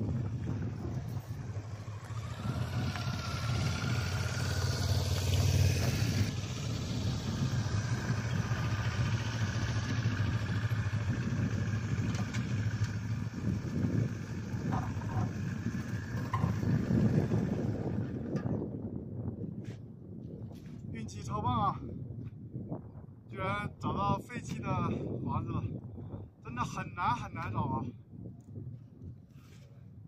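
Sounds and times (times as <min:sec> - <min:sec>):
motorcycle engine running: 0:00.0 - 0:18.8.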